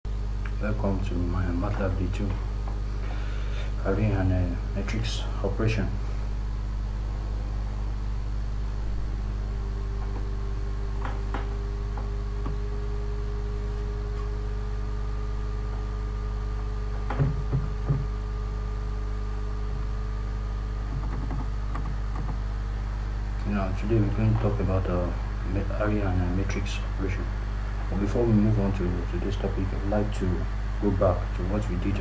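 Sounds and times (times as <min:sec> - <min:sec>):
low electrical hum: 0:00.1 - 0:32.0
soft knocks: 0:17.0 - 0:18.2.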